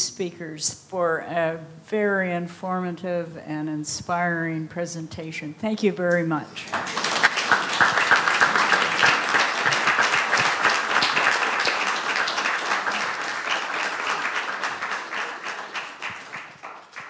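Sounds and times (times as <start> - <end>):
audience applauding: 6.7 - 17.0.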